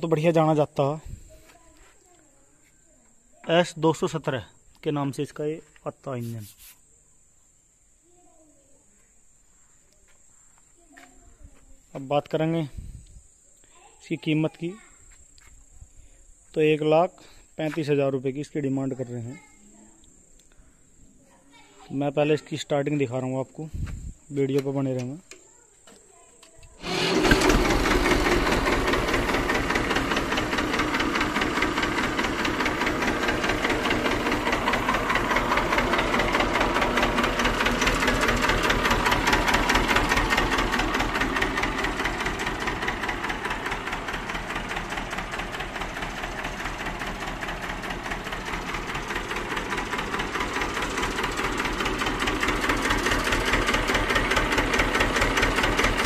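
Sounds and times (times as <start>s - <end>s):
diesel tractor engine starting and running: 26.7s - 56.0s.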